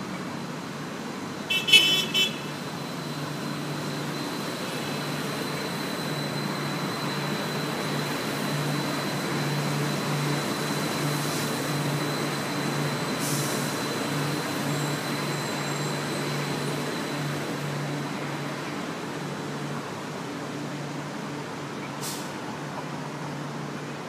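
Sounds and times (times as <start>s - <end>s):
metro train rolling past: 0.0s - 24.0s
thin high whine: 1.6s - 18.9s.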